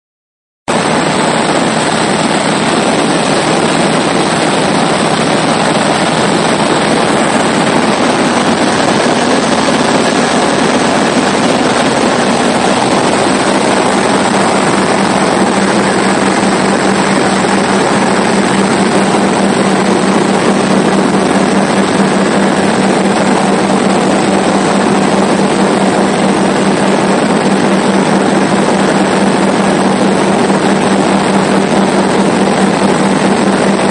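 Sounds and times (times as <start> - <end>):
aircraft engine and propeller drone: 0.7 - 33.9
rush of air: 0.7 - 33.9.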